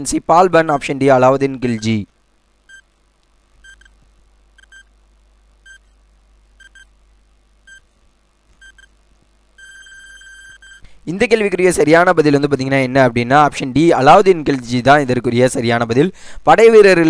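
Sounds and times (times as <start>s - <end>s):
short electronic beeps: 3.6s - 3.9s, 4.6s - 4.9s, 5.6s - 5.8s, 6.6s - 6.9s, 9.6s - 10.8s
long electronic beep: 9.6s - 10.8s.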